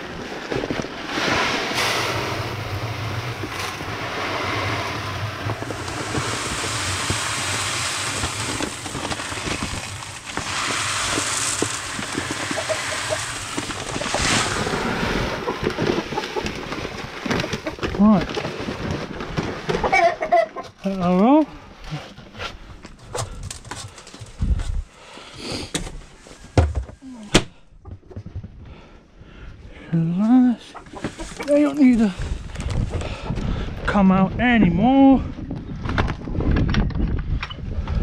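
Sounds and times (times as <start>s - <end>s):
wind buffeting microphone: 32.0s - 38.0s.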